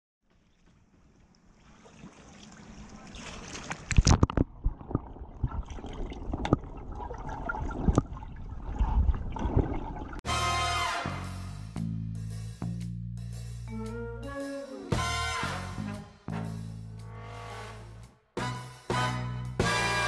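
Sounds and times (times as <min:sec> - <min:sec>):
music with brass and drums: 0:10.2 - 0:20.0.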